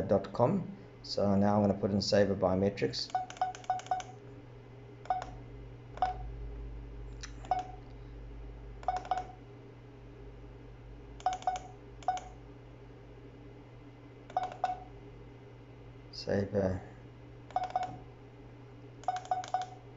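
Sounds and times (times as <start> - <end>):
short keypad beeps: 3.1 - 4.2, 5.1 - 5.4, 7.4 - 7.8, 8.8 - 9.4, 11.2 - 12.3, 14.3 - 14.9, 17.5 - 18.0, 19.0 - 19.8.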